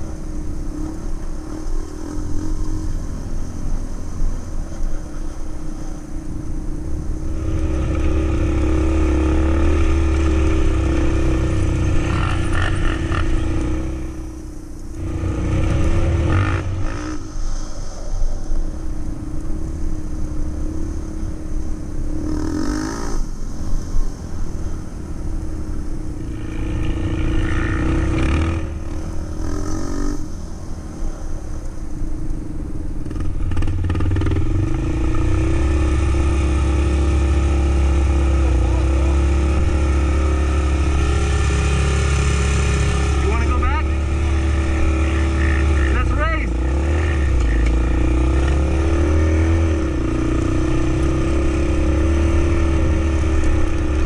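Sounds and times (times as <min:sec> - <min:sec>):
quad engine revving: 0:07.3 - 0:14.4, 0:15.0 - 0:17.2, 0:26.3 - 0:30.2, 0:33.1 - 0:54.0.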